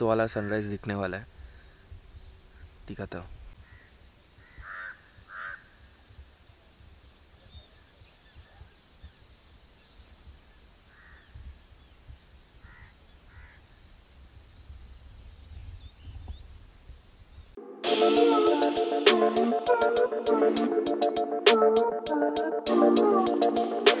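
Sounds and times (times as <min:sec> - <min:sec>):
wind rumble on microphone: 0:14.6 - 0:17.6.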